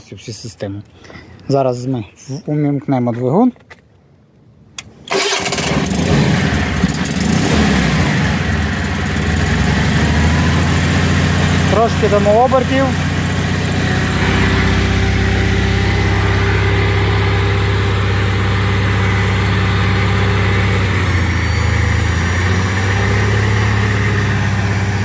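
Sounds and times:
small engine running: 0:05.1 - 0:25.0.

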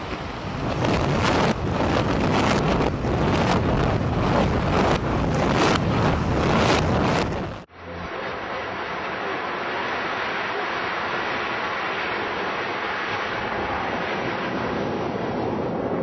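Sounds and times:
building collapsing rumble: 0:00.0 - 0:08.2.

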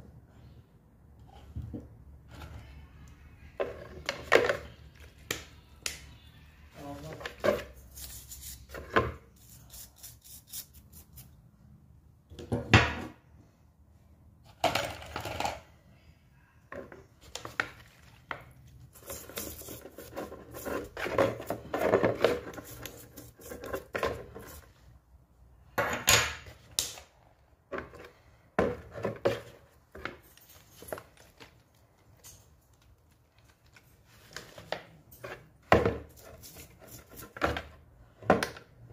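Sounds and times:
toothbrush scrubbing metal parts: 0:07.8 - 0:11.4, 0:19.0 - 0:24.6.

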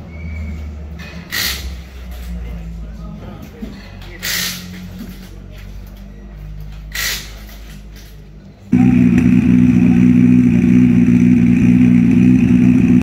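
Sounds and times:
steady engine drone: 0:08.7 - 0:13.0.

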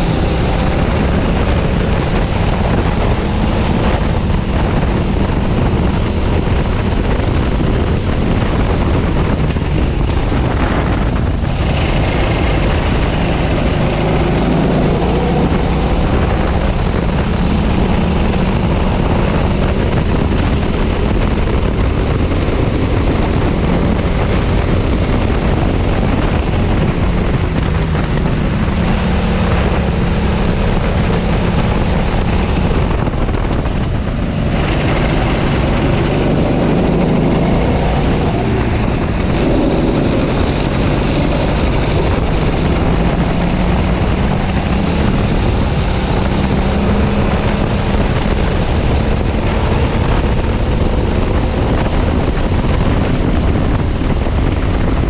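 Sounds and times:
kart engine running hard: 0:00.0 - 0:55.0
wind buffeting microphone: 0:00.0 - 0:55.0.

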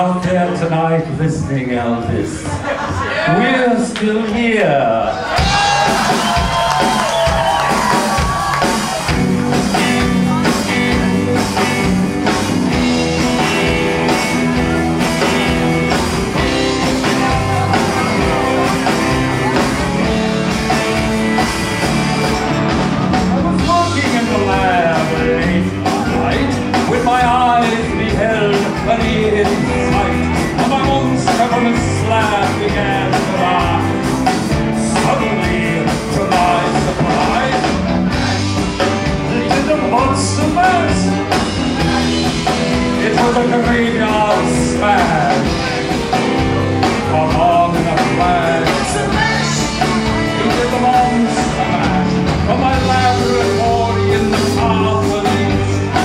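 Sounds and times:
live rock band playing: 0:00.0 - 0:56.0
man singing: 0:23.4 - 0:56.0.

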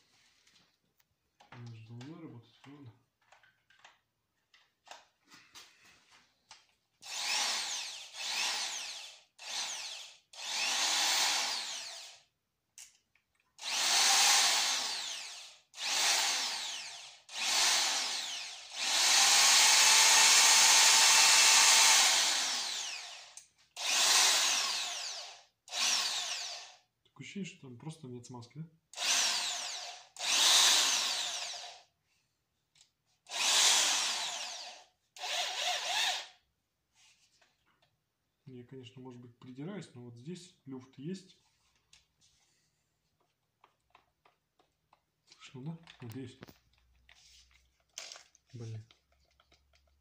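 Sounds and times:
impact drill spinning: 0:07.0 - 0:12.3, 0:13.6 - 0:26.9, 0:28.9 - 0:31.9, 0:33.2 - 0:36.4.

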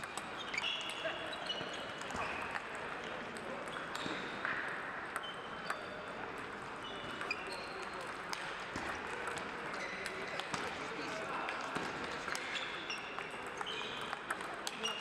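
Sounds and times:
table tennis balls clicking: 0:00.0 - 0:15.0
shoes squeaking on floor: 0:00.2 - 0:02.6, 0:03.7 - 0:04.3, 0:06.8 - 0:08.0, 0:09.8 - 0:10.6, 0:12.4 - 0:14.2.

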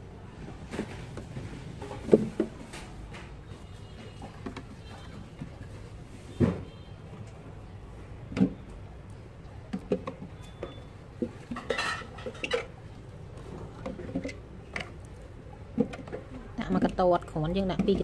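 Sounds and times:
cucumbers knocking on plastic jars: 0:15.7 - 0:18.0.

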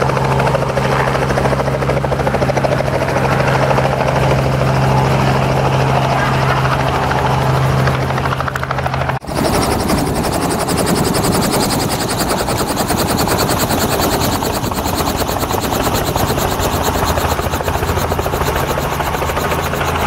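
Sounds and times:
helicopter rotor blade chop: 0:00.0 - 0:20.0.

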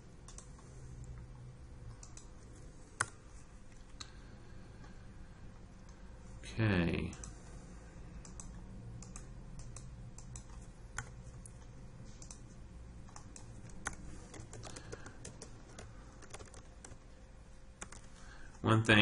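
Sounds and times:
typing on a keyboard: 0:13.1 - 0:17.0, 0:17.8 - 0:18.1.

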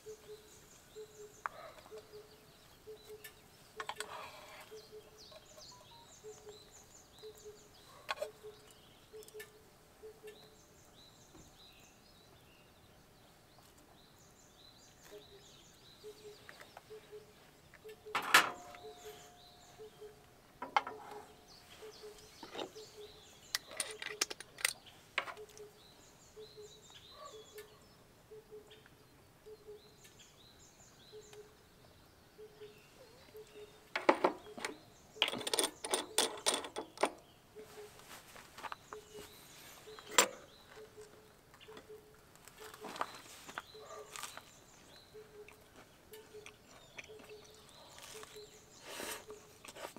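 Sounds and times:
birds chirping faintly: 0:00.0 - 0:49.9
knocks and clatters: 0:20.6 - 0:21.2, 0:34.0 - 0:37.2.

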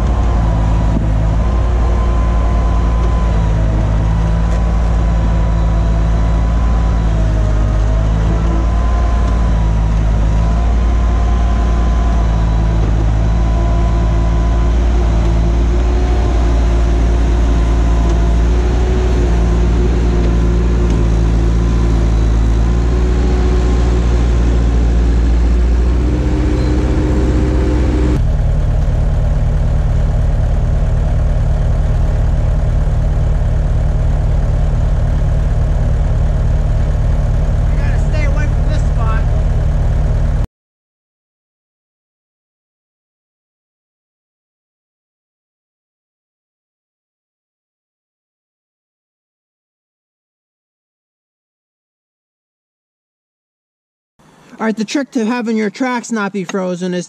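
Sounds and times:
diesel engine running under load: 0:00.0 - 0:40.5.

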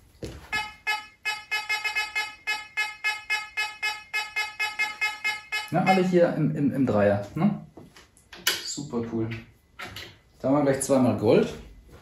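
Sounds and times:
metal detector beeping: 0:00.5 - 0:06.2.

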